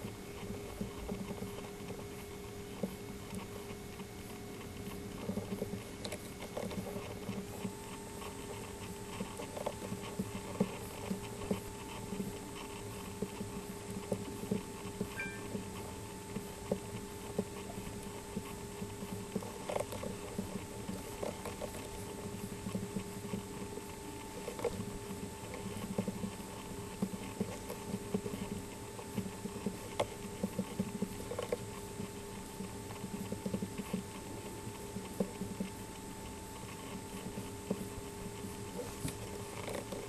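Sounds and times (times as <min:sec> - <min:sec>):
electrical hum: 0:00.0 - 0:40.0
faint high whine: 0:15.0 - 0:16.0.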